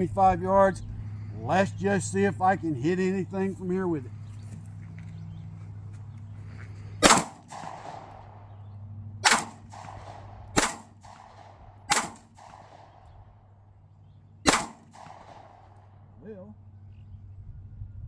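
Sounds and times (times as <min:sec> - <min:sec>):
pistol shots: 0:07.0 - 0:08.6, 0:09.2 - 0:13.5, 0:14.4 - 0:16.0.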